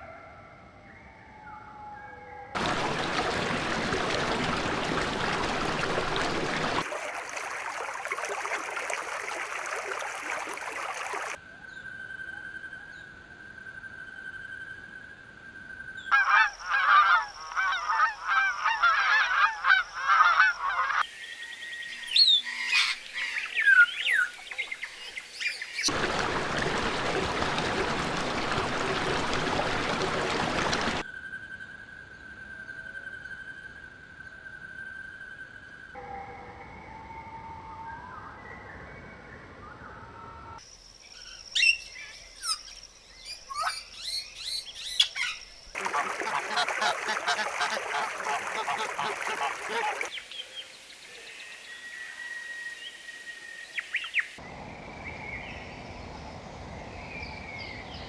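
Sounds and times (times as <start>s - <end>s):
geese honking: 16.1s - 21.0s, 45.8s - 50.1s.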